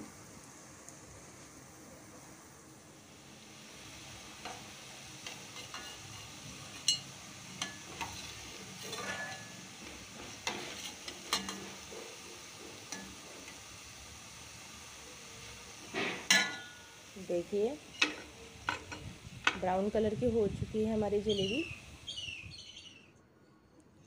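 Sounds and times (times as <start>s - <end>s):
batter sizzling in hot fat: 0.0s - 22.8s
metal spoon clinking against pan: 5.2s - 8.2s, 8.8s - 9.6s, 10.4s - 11.7s, 12.9s - 13.2s, 16.3s - 16.8s, 18.0s - 19.0s.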